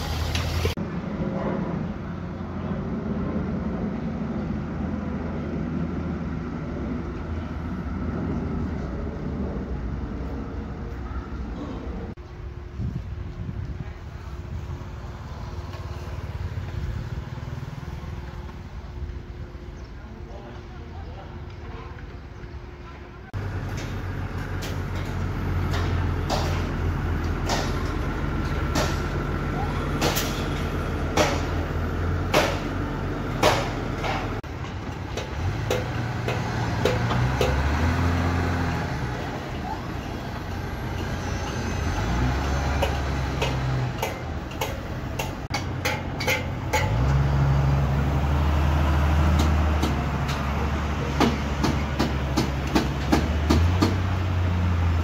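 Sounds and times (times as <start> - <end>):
heavy machinery diesel engines: 0.0 - 55.0
sharp metallic clanks: 23.6 - 29.3, 29.9 - 32.8, 42.7 - 47.2.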